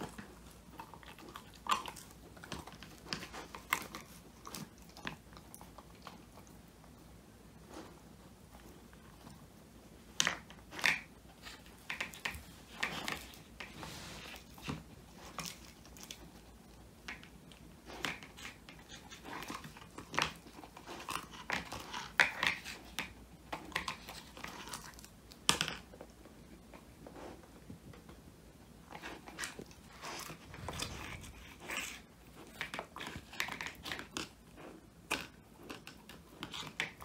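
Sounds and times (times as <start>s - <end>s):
dog crunching bone treat: 0.0s - 6.7s, 10.1s - 13.7s, 14.3s - 26.2s, 28.8s - 37.0s.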